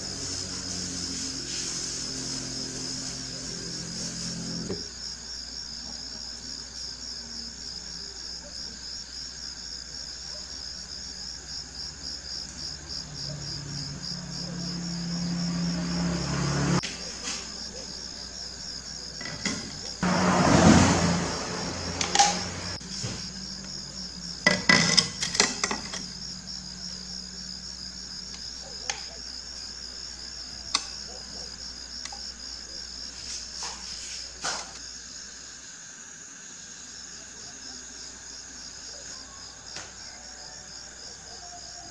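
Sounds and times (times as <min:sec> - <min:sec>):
cricket trilling: 0:00.0 - 0:41.9
glass pane scraping on table: 0:03.8 - 0:04.9, 0:19.2 - 0:23.3, 0:24.4 - 0:26.1.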